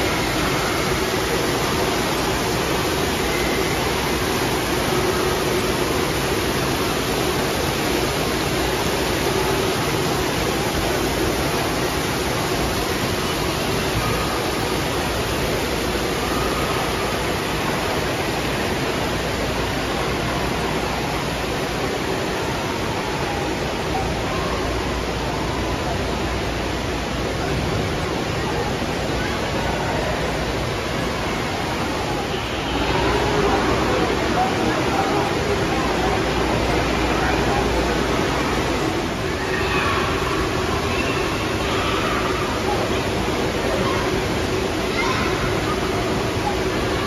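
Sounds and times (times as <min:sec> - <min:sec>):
spraying and falling water: 0:00.0 - 0:47.0.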